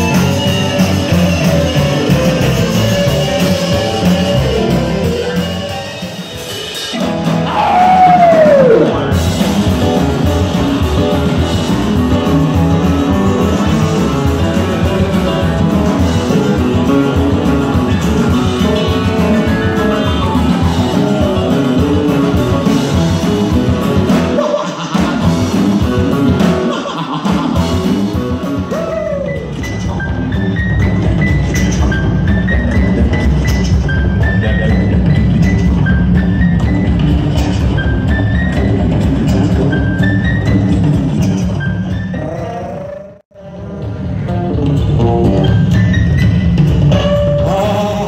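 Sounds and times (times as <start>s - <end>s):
rockabilly band playing: 0.0s - 48.0s
person singing: 24.2s - 30.1s, 42.1s - 44.6s, 46.9s - 48.0s.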